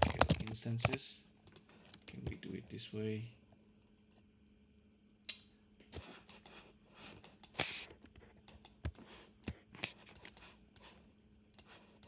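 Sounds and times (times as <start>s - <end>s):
computer keyboard keystrokes: 0.0s - 2.4s, 7.2s - 10.9s
faint low hum: 0.0s - 12.0s.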